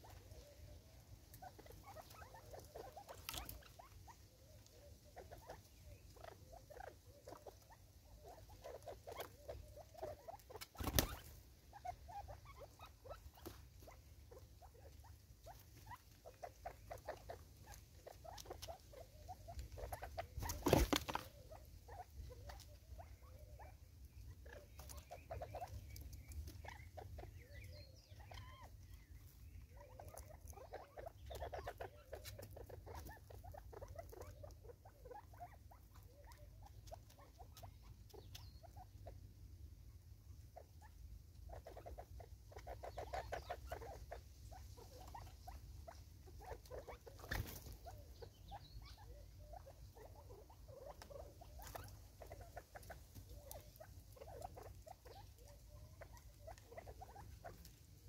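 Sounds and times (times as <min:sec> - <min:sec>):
birds clucking: 0:00.0 - 0:39.6, 0:40.3 - 0:58.0
birds pecking plastic feeder: 0:15.6 - 0:21.6.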